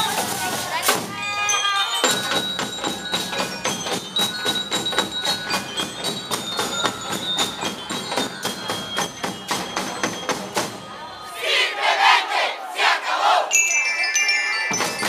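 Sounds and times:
snare and bass drums: 0.0s - 1.2s, 2.0s - 11.0s
high bell-like notes: 1.1s - 11.2s, 13.5s - 15.0s.

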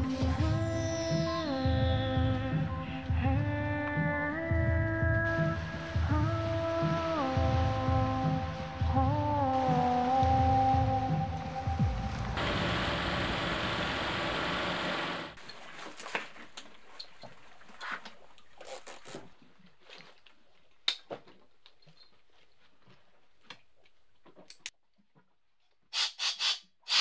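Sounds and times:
beach surf rushing: 5.4s - 15.4s.

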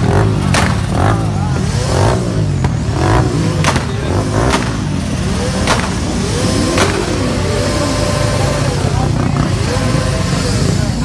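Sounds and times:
motorcycle and car engines revving: 0.0s - 11.0s
sharp cracks: 0.4s - 1.3s, 3.5s - 7.3s.

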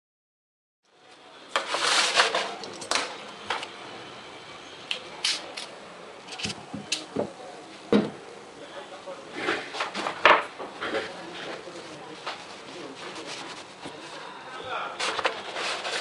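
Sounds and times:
vinyl sheet scraping rustle: 1.5s - 3.2s, 9.3s - 16.0s.

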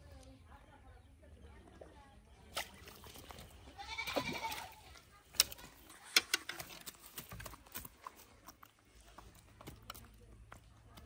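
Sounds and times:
fish slapping on ground: 2.5s - 10.2s.

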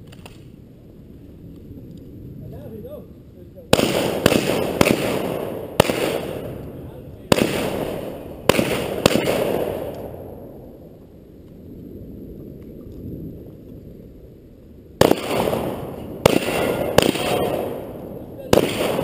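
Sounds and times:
distant gunshots with echo: 3.7s - 10.8s, 15.0s - 19.0s.

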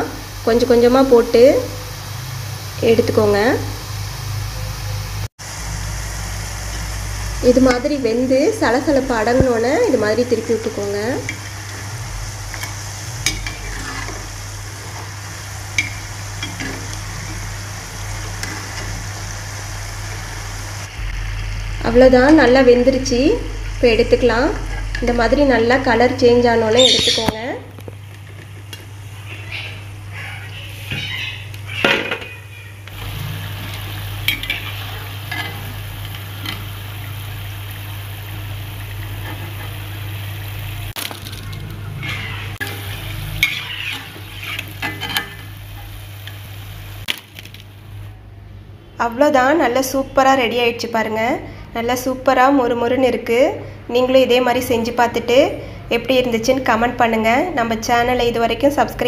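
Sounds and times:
dough sizzling in hot oil: 0.0s - 26.5s, 32.9s - 48.1s
ladle stirring: 12.5s - 17.5s, 41.0s - 46.4s.

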